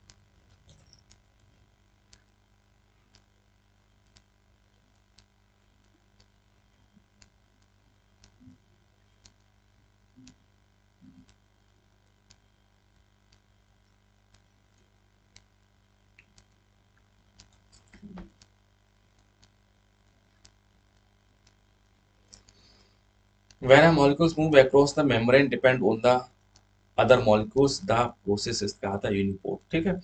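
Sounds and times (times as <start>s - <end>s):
faint clicks: 0.0s - 2.4s, 3.0s - 3.4s, 4.0s - 9.5s, 10.1s - 19.6s, 20.3s - 22.8s
steady low hum: 0.0s - 30.0s.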